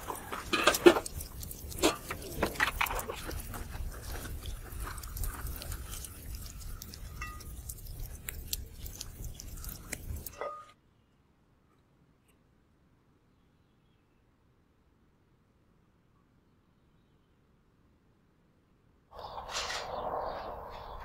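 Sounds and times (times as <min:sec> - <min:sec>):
leafy greens crackling and rustling: 0:00.0 - 0:10.5
steady low rumble: 0:19.2 - 0:21.0.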